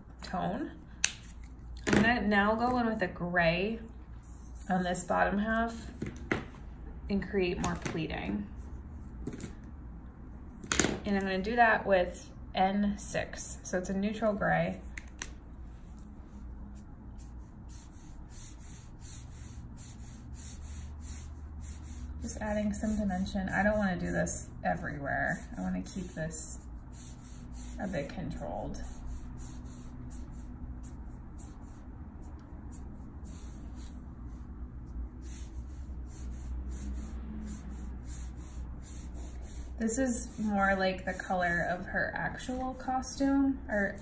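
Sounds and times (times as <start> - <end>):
low steady hum: 0.0 - 44.0
marker rubbing on paper: 4.2 - 6.0, 15.9 - 44.0.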